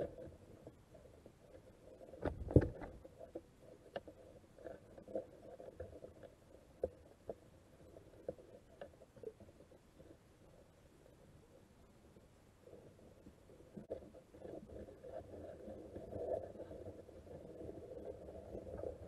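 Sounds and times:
muffled underwater knocks and clicks: 0.0 - 10.7, 12.1 - 19.0
dull underwater thump: 2.2 - 3.0.

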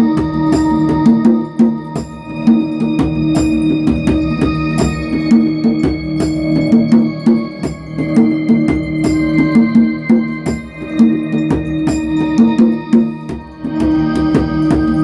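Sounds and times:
djembe hand drumming: 0.0 - 15.0.

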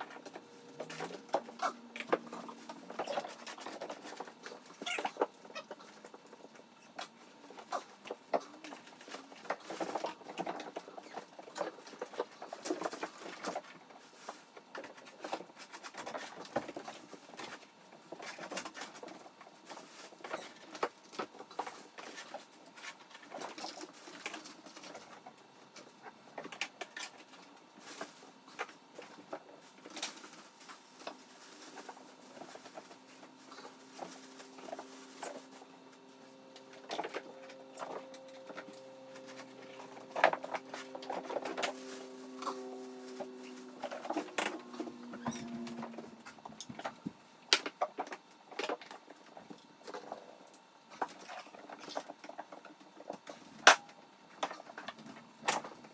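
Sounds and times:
low steady hum: 0.0 - 55.9
plastic bag rustling: 26.8 - 47.2
cat litter being scooped: 27.8 - 46.4.

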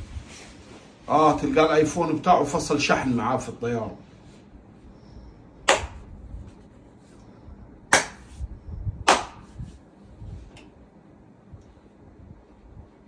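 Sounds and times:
short sharp slaps: 5.7 - 6.1, 7.9 - 8.4, 9.1 - 9.6.

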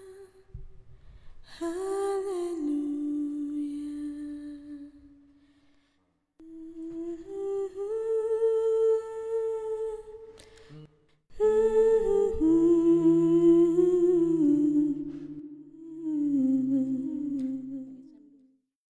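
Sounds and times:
person humming a melody: 6.4 - 18.4.

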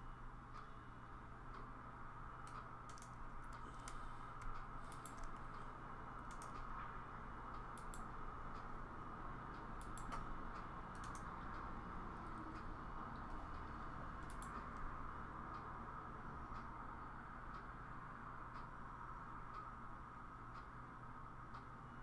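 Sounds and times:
steady low hum: 0.0 - 22.0
computer mouse clicks: 2.4 - 6.8, 7.6 - 8.7, 9.8 - 11.6, 12.3 - 14.9.

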